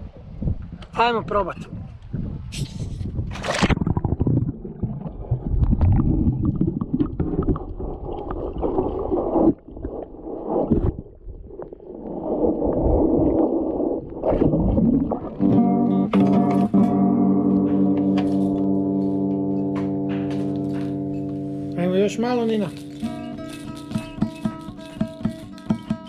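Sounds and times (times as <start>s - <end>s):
underwater sloshing and bubbling: 3.1s - 15.6s
splash into water: 3.3s - 6.2s
ringing guitar chord: 15.5s - 25.7s.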